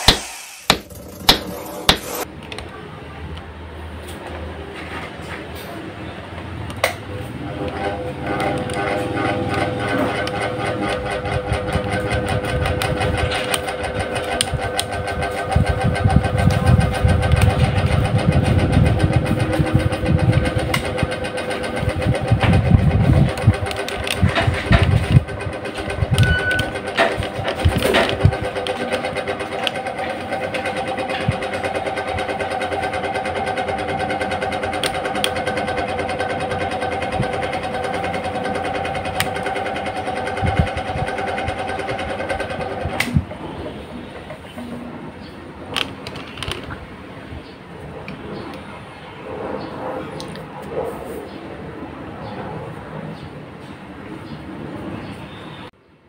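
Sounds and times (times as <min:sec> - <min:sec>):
electric fan motor hum: 0:00.0 - 0:02.5, 0:06.0 - 0:50.4
fan rattling and knocking: 0:07.1 - 0:47.1.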